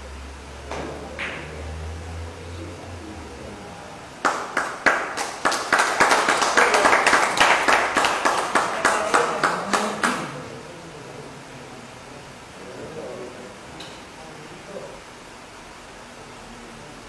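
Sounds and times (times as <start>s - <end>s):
spectators clapping: 4.2s - 10.4s.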